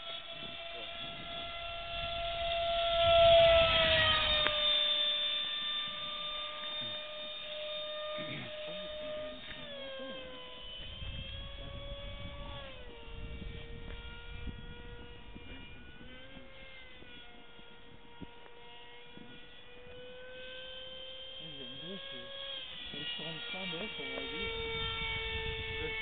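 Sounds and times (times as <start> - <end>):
model airplane motor whining: 0.0 - 26.0
low rumble: 6.7 - 18.4.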